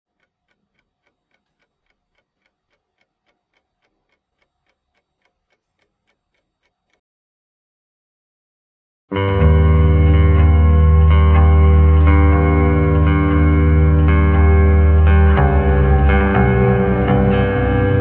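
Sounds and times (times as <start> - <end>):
faint regular ticking: 0.1 - 7.0.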